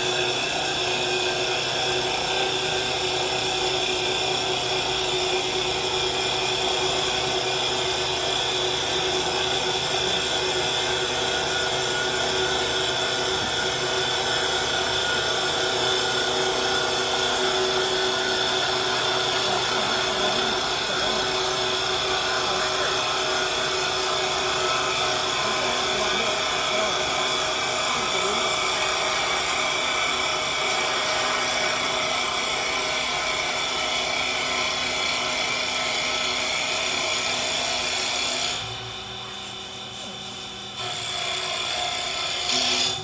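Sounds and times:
lathe machine hum and whine: 0.0s - 43.0s
hiss of wood cutting: 12.8s - 41.2s.

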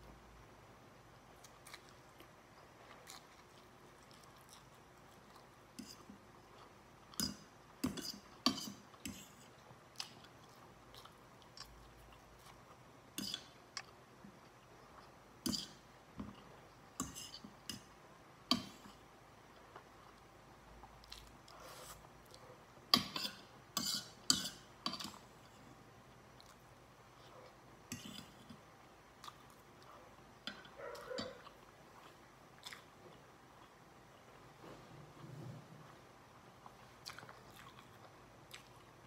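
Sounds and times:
chewing and mouth sounds: 1.4s - 6.8s, 29.2s - 33.8s, 36.6s - 39.0s.

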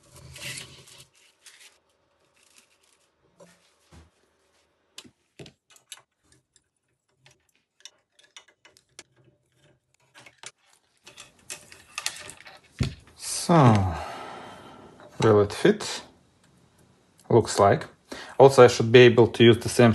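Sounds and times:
small parts being handled: 0.1s - 3.9s, 5.0s - 13.2s.

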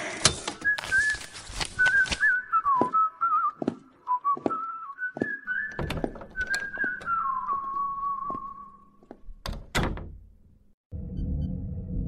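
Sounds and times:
person whistling a tune: 0.6s - 8.8s.

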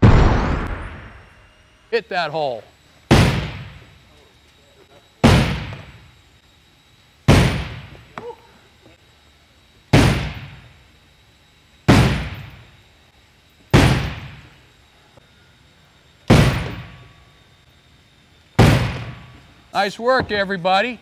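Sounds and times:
sledgehammer striking plastic hull: 5.2s - 5.8s, 16.3s - 16.8s, 18.6s - 19.2s.

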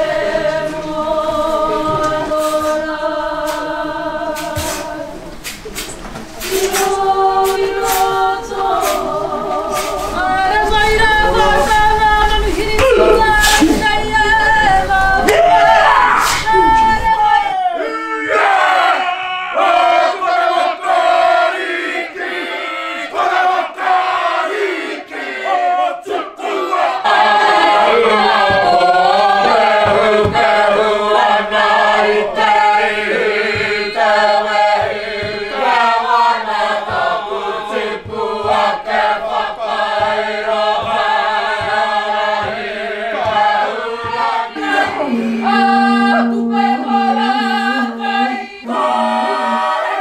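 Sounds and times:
group chanting and singing: 0.0s - 50.0s
low thumps: 28.0s - 35.6s
held low note: 44.6s - 50.0s.

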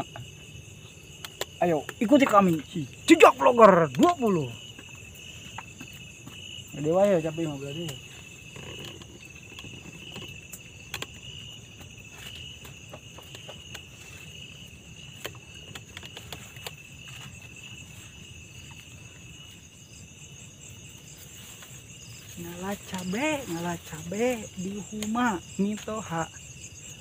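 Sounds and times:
crickets and insects chirping: 0.0s - 27.0s.

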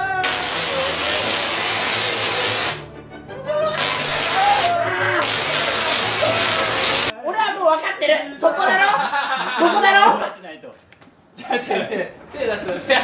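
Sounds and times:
people shouting: 0.0s - 2.8s, 3.5s - 7.2s
tesla coil buzzing crackle: 0.2s - 2.9s, 3.8s - 7.1s.

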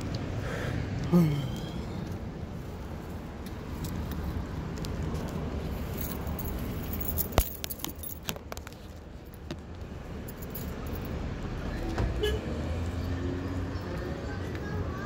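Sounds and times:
phone handling rumble while walking: 3.4s - 11.1s
light clicks and clinks: 5.9s - 9.6s.

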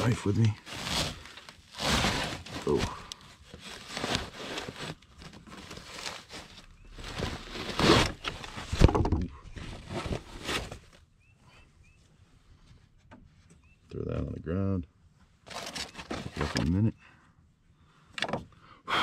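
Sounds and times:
fabric ripping and rustling: 0.0s - 8.9s.

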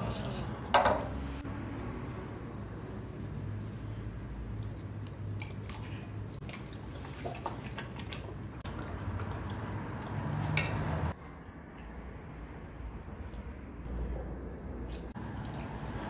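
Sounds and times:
dog chewing and lip-smacking: 1.6s - 12.4s, 14.1s - 16.0s.

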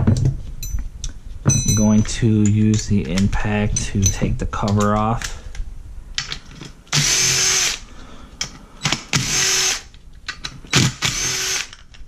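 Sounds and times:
impact driver running: 8.8s - 9.8s, 10.8s - 11.8s.

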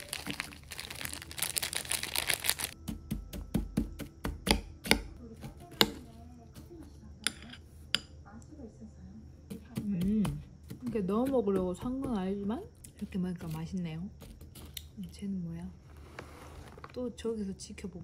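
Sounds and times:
plastic snack packet crinkling: 0.0s - 2.8s
metal spoon scraping ceramic bowl: 7.2s - 8.1s.

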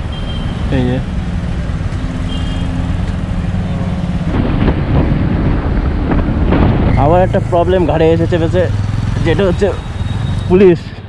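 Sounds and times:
wind rushing over microphone: 3.4s - 7.9s
motorcycle engine running: 7.2s - 10.2s.

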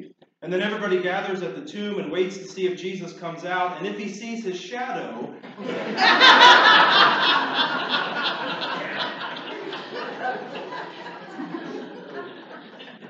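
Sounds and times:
congregation laughing: 5.4s - 13.0s.

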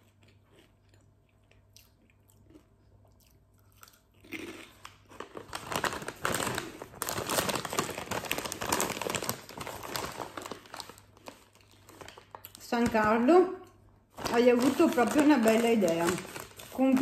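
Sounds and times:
chewing crunchy crisp: 0.0s - 5.8s
crisp packet crinkling: 4.3s - 13.3s, 14.1s - 17.0s.

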